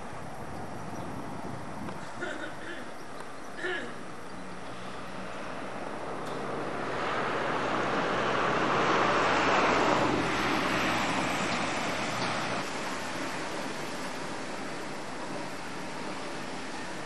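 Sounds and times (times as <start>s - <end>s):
car driving past: 4.7s - 12.6s.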